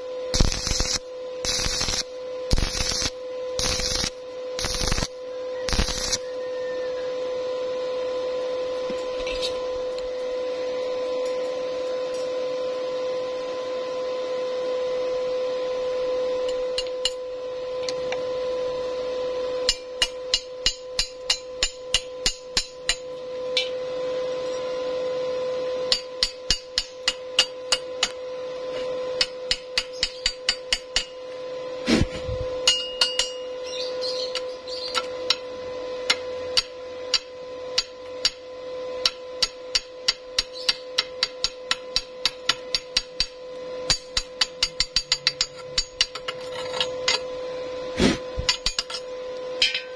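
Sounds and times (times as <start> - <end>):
electrical hum: 0.0 - 49.9
hammer striking steel: 19.6 - 23.8, 25.9 - 28.2, 29.2 - 31.2, 32.6 - 33.6, 34.3 - 38.4, 39.0 - 47.3, 48.4 - 49.9.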